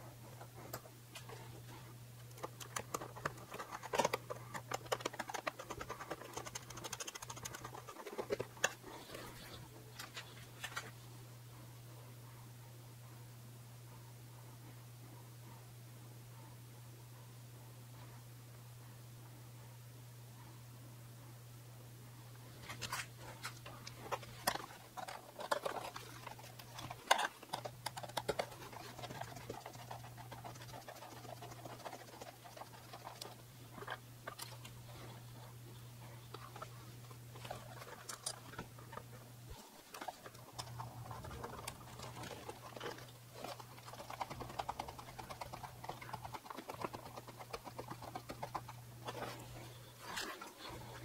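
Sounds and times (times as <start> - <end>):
steady low hum: 0.0 - 51.0
hands clicking and tapping small parts: 2.2 - 8.8.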